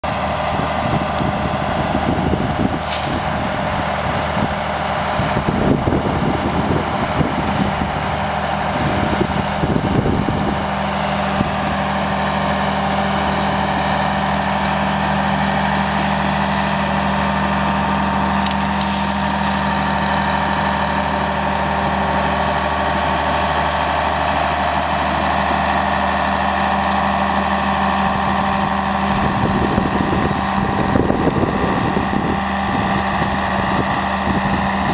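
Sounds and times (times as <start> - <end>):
diesel engine under load: 0.0 - 34.9
branches cracking and snapping: 2.7 - 3.6, 17.4 - 21.2.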